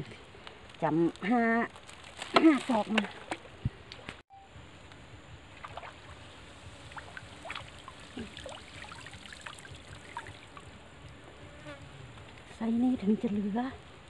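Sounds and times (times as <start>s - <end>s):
water trickling and dripping: 6.8s - 10.8s.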